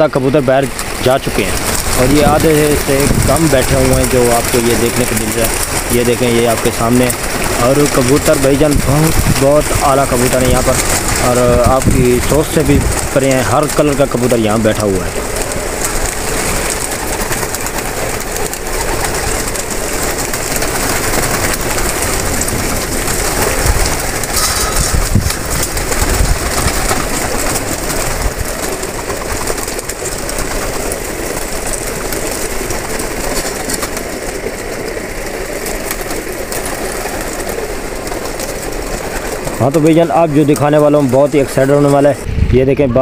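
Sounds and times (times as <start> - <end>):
pigeons flapping wings: 0.0 - 42.3
pigeons cooing: 0.7 - 42.2.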